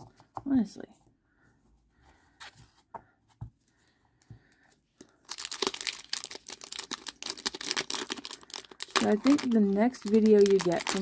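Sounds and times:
foil wrapper tearing and crinkling: 0:05.2 - 0:11.0.

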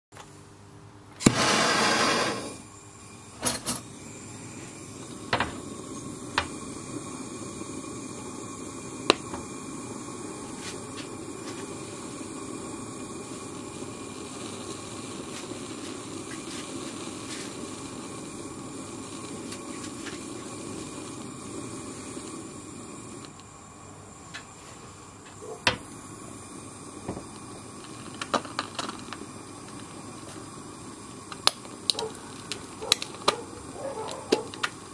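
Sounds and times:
blow torch lighting whoosh: 0:01.2 - 0:23.4
torch flame hissing: 0:01.2 - 0:34.9
sharp clicks and pops: 0:27.2 - 0:30.4, 0:31.3 - 0:34.9.

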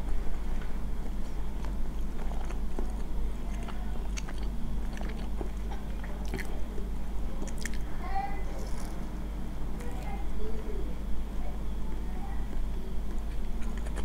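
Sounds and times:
low steady hum: 0:00.0 - 0:14.0
wet chewing: 0:01.1 - 0:07.9, 0:12.5 - 0:14.0.

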